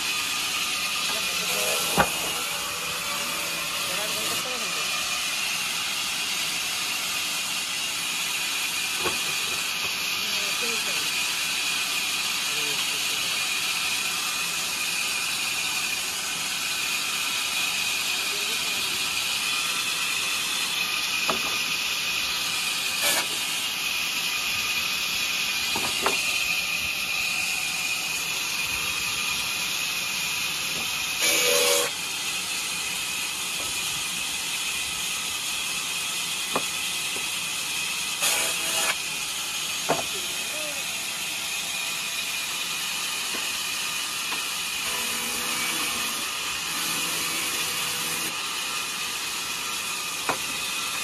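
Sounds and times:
band saw running: 0.0s - 51.0s
wood knocking on saw table: 21.3s - 21.6s, 25.7s - 26.2s, 39.9s - 40.1s, 50.2s - 50.6s.

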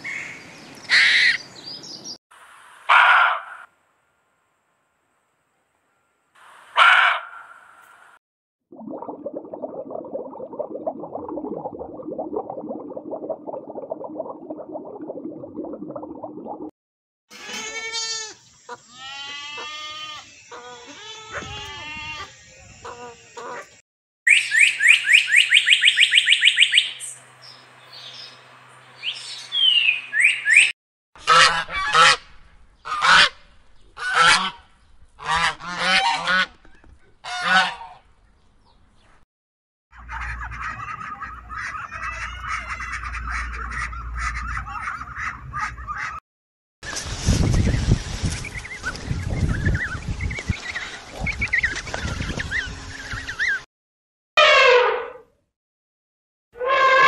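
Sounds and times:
bird calls curving in pitch: 24.3s - 27.2s, 29.0s - 30.7s
swans honking: 31.2s - 32.2s, 34.0s - 36.6s, 37.2s - 38.0s, 40.0s - 46.2s.

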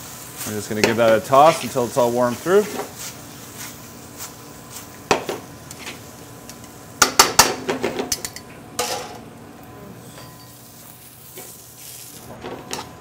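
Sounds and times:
frying pan and utensils clattering: 0.6s - 1.8s, 7.0s - 9.2s, 10.1s - 10.6s, 12.3s - 13.0s.

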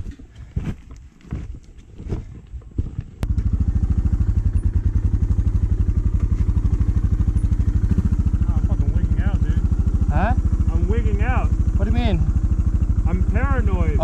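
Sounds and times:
footsteps on loose rock: 0.0s - 3.2s
motorcycle engine idling: 3.2s - 14.0s.

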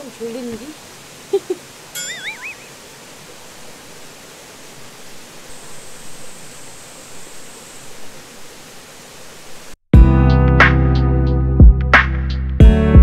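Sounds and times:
stream rushing: 0.0s - 9.8s
short wavering whistle: 2.0s - 2.7s.

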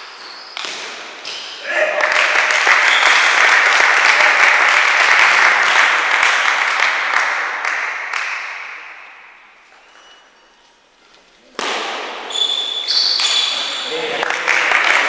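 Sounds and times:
spectators applauding: 1.9s - 8.8s, 13.8s - 15.0s.

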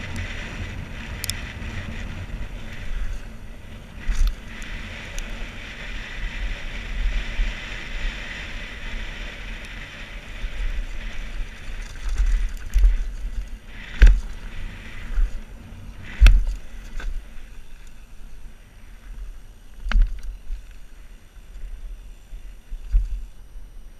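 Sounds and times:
tyre and wind rush: 0.0s - 23.8s
bike knocking over bumps: 10.6s - 15.4s.

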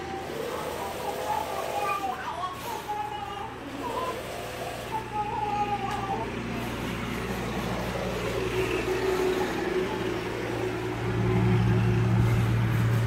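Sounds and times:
low motor hum: 2.8s - 13.0s.

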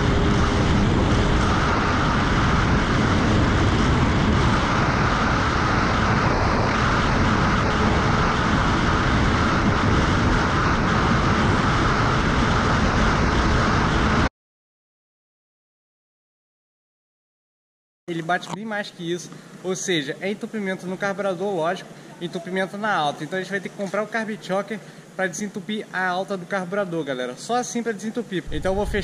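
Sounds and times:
jet ski engine at full throttle: 0.0s - 14.2s.

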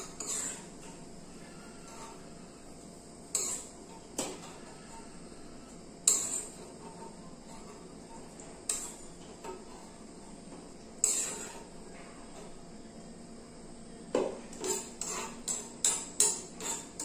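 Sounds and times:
steel spoon clinking on metal pan: 3.3s - 3.7s, 6.0s - 6.6s, 14.6s - 17.0s.

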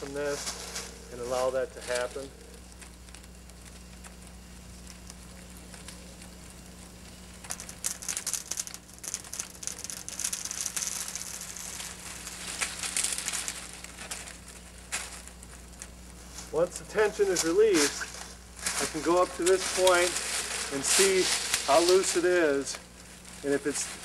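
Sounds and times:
sapling wood cracking and splintering: 1.9s - 16.1s.

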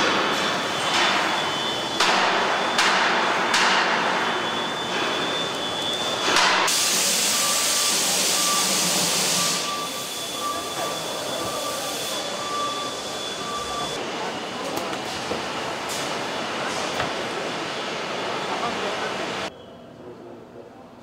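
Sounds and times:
machinery hissing bursts: 0.0s - 19.5s
intermittent beeping tone: 9.4s - 14.0s.

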